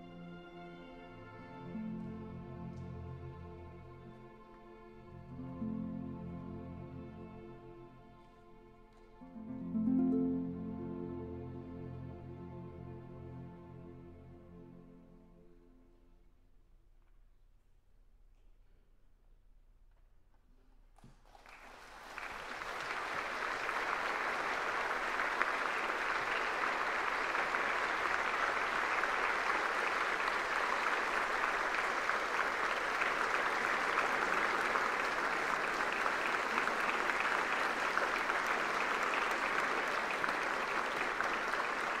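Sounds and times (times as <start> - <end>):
audience applause: 21.2 - 42.0.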